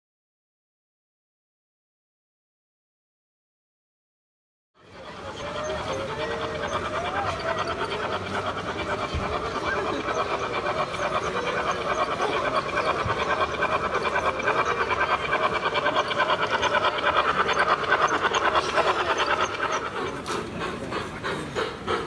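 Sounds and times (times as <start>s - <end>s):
model steam train chuffing: 4.8s - 22.0s.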